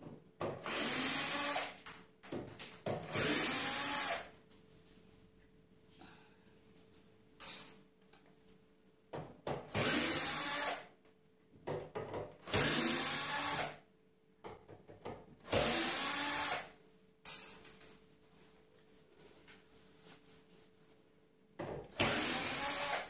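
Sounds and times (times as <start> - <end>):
cordless drill driving screws: 0.6 - 1.8, 3.1 - 4.3, 9.7 - 10.9, 12.4 - 13.8, 15.4 - 16.7, 22.0 - 23.0.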